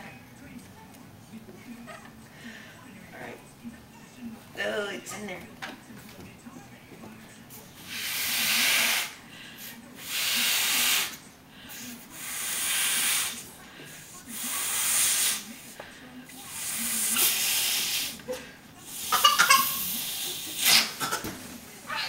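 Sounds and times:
hissing exhalations into balloon: 0:07.8 - 0:13.5, 0:14.3 - 0:15.8, 0:16.5 - 0:18.2, 0:18.8 - 0:21.0
balloon squeaking: 0:07.9 - 0:09.2.

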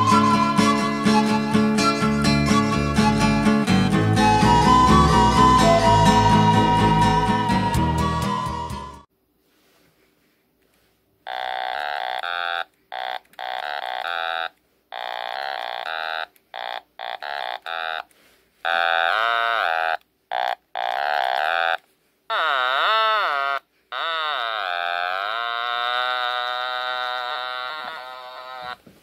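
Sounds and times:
toy noisemaker buzzy reedy notes: 0:00.0 - 0:08.9, 0:11.2 - 0:28.9.

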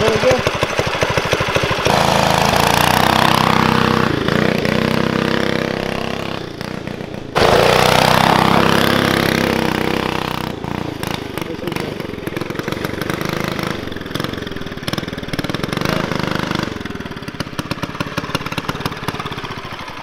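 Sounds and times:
go-kart engine running: 0:00.0 - 0:20.0.

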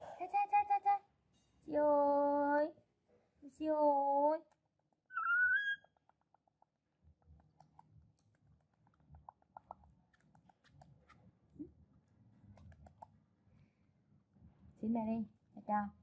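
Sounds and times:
baby monkey squealing: 0:05.1 - 0:05.9
soft clicks and smacking: 0:05.8 - 0:13.2.

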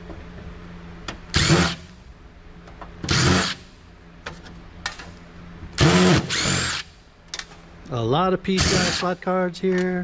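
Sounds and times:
cordless driver whirring: 0:03.1 - 0:03.6, 0:05.8 - 0:06.9.

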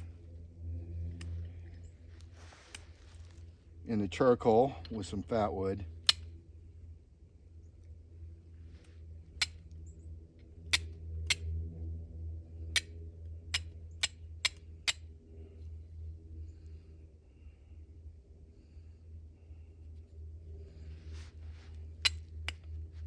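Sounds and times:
low steady hum: 0:00.0 - 0:23.0
fire striker hitting flint: 0:13.5 - 0:15.0.

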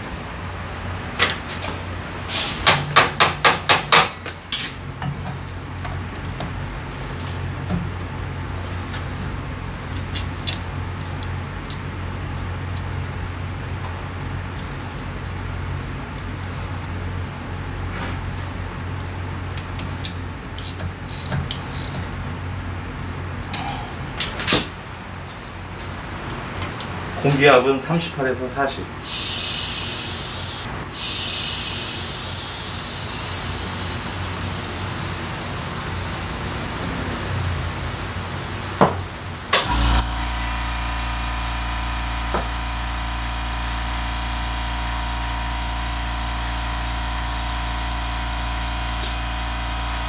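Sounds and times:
wrench clicking on metal: 0:20.0 - 0:22.0
steady low hum: 0:31.8 - 0:50.0.

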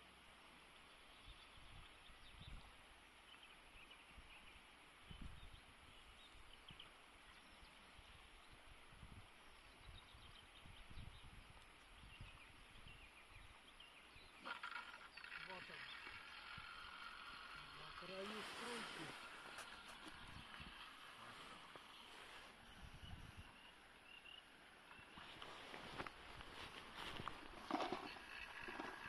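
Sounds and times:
wind rumble on microphone: 0:01.2 - 0:02.8, 0:05.0 - 0:06.9, 0:08.0 - 0:14.3, 0:16.0 - 0:23.7.

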